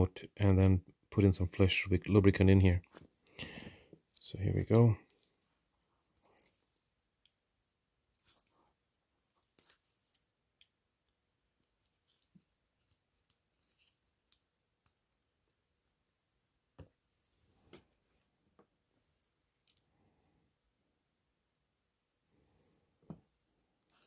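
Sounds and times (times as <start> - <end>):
soft rustle: 11.7 - 14.4, 17.0 - 19.8.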